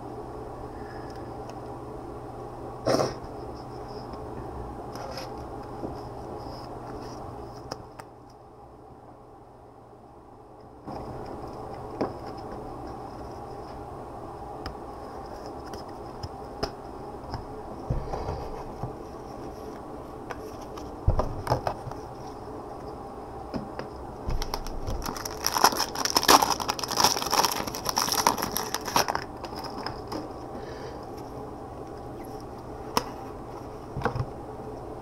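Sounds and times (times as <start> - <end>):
steady low hum: 0.0 - 35.0
packaging crinkling: 24.3 - 30.4.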